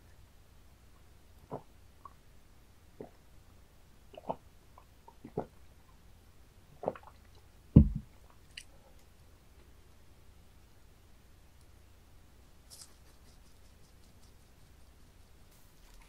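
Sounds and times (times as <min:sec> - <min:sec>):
dull thump: 0:07.8 - 0:08.1.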